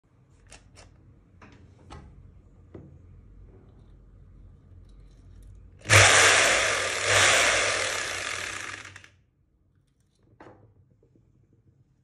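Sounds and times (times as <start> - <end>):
hammer drill motor running: 5.8 - 9.1.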